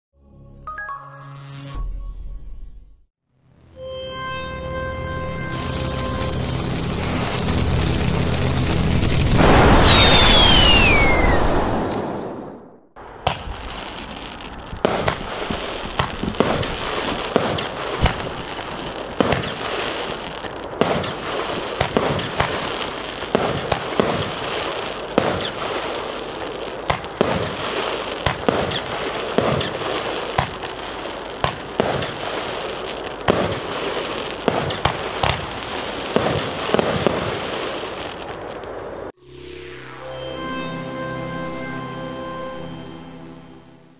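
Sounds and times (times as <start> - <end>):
whoosh with falling whistle: 3.8 - 6.4, 9.3 - 12.7, 39.3 - 43.4
firework crackle: 5.0 - 39.2
firework launches and bursts: 5.4 - 39.0.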